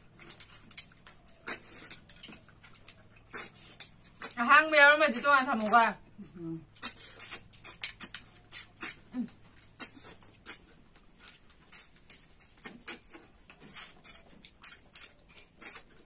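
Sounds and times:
wet sucking slurps: 0:03.2 - 0:04.4, 0:06.8 - 0:09.1.

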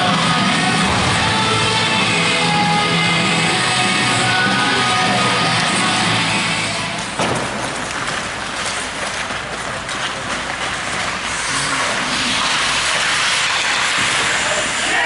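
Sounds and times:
rink noise: 0:04.3 - 0:15.0
skates scraping ice: 0:06.6 - 0:15.0
hockey sticks clacking: 0:06.9 - 0:14.6.

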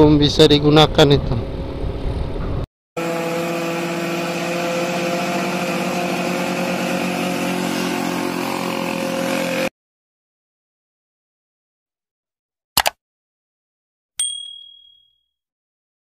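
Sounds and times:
vehicle engine running: 0:03.0 - 0:09.7.

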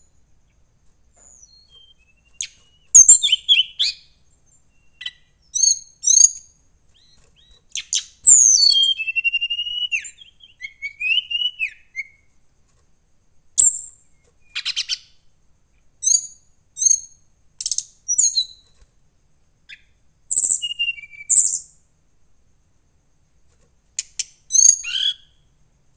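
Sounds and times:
bird singing whistles and trills: 0:01.2 - 0:12.3, 0:13.6 - 0:15.2, 0:16.0 - 0:18.8, 0:19.6 - 0:21.8, 0:24.0 - 0:25.5.

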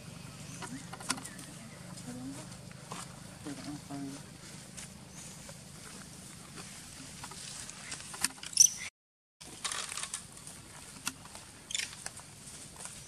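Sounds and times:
scuffling in dry leaves: 0:01.5 - 0:08.1, 0:09.4 - 0:13.0.

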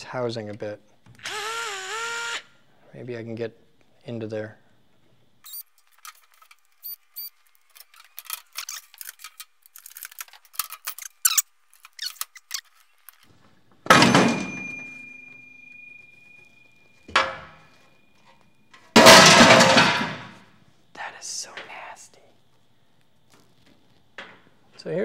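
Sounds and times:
typewriter mechanism clicks and rattles: 0:07.7 - 0:13.2
heavy clatter on steel workbench: 0:13.9 - 0:14.9, 0:19.0 - 0:20.4
loud clunk with metal ringing: 0:13.9 - 0:15.6, 0:19.0 - 0:20.4.

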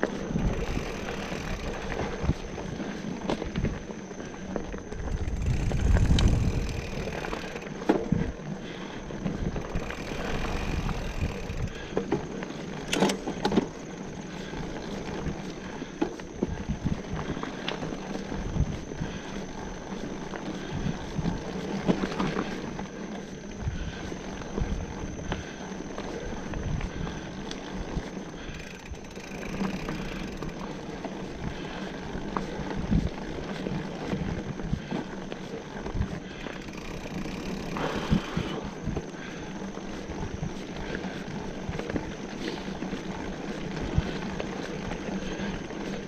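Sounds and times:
bicycle rattling over rough ground: 0:00.0 - 0:46.0
wind buffeting microphone: 0:04.8 - 0:08.4, 0:16.4 - 0:17.4, 0:18.3 - 0:19.3, 0:32.7 - 0:35.0.

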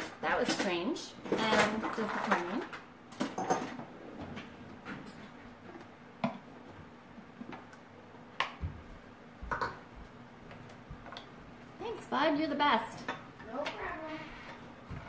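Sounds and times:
kitchen things clicking and knocking: 0:00.0 - 0:06.5, 0:09.4 - 0:09.9.

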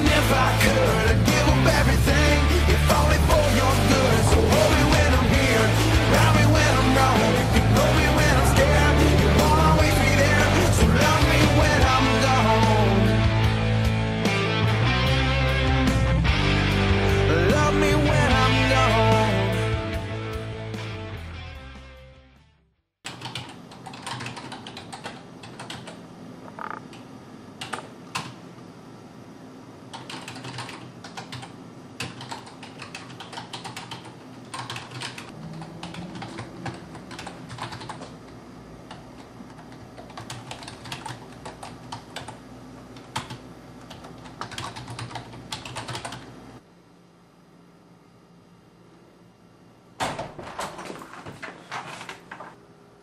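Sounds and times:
computer keyboard typing: 0:23.1 - 0:27.0, 0:27.6 - 0:28.4, 0:29.9 - 0:38.3, 0:38.9 - 0:42.4, 0:43.0 - 0:46.3.

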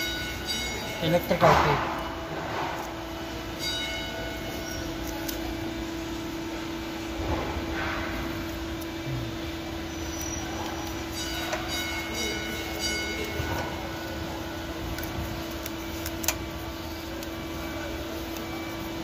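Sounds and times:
steady hum: 0:00.0 - 0:19.0
tape peeling squeaks: 0:04.3 - 0:05.6, 0:09.7 - 0:19.0.

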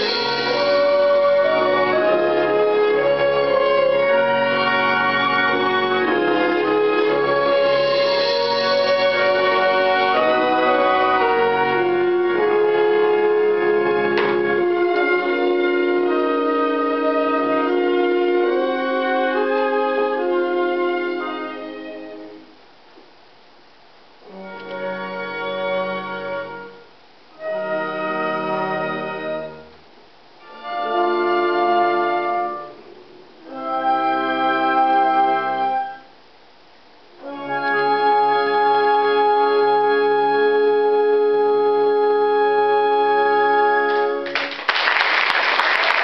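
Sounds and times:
organ-like keyboard chords: 0:00.0 - 0:22.6, 0:30.4 - 0:36.1, 0:37.2 - 0:44.3
audience applause: 0:44.2 - 0:46.0.

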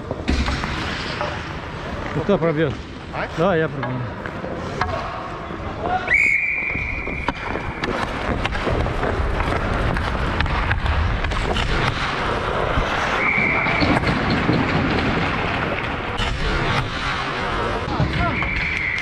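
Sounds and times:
referee's whistle: 0:06.1 - 0:07.4, 0:13.2 - 0:14.0, 0:18.2 - 0:19.0
ice skates scraping ice: 0:06.6 - 0:18.0
hockey stick tapping puck: 0:07.1 - 0:12.3, 0:13.7 - 0:16.1.

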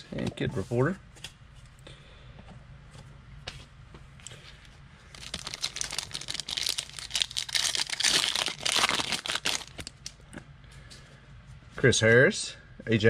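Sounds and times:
foil wrapper tearing and crinkling: 0:05.1 - 0:10.1.

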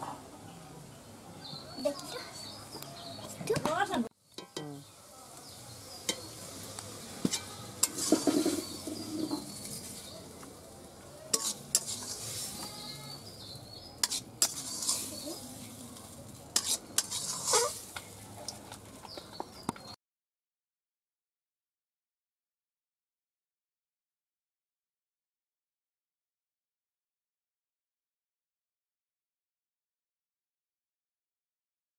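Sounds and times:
food sizzling: 0:01.8 - 0:19.3
spatula clinking against pan: 0:04.4 - 0:04.8, 0:06.0 - 0:06.4, 0:11.3 - 0:12.7
metal spatula scraping a wok: 0:04.4 - 0:10.4, 0:11.2 - 0:18.9.

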